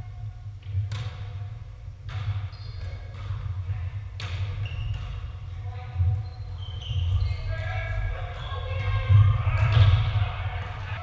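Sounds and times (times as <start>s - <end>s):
shoe squeaks: 2.4s - 3.1s, 4.5s - 5.2s, 6.1s - 9.0s.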